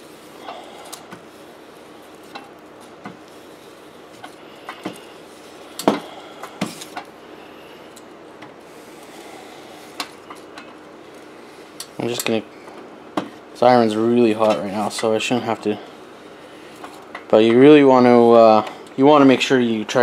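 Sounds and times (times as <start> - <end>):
clothes iron sliding and rubbing: 0.0 - 5.8, 8.6 - 18.6.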